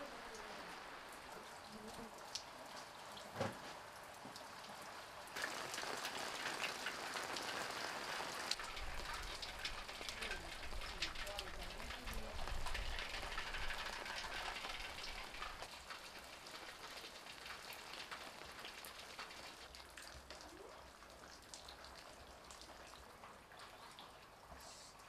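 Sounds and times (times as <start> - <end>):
rain falling on roofs: 0.0 - 25.0
water drips: 0.0 - 25.0.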